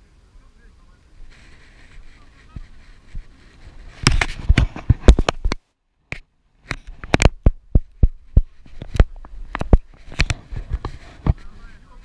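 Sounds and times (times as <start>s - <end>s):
camera handling clicks and knocks: 4.0s - 7.6s.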